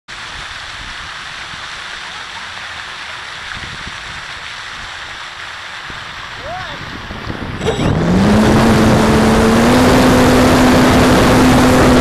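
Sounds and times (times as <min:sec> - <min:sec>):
wind rushing: 0:06.7 - 0:12.0.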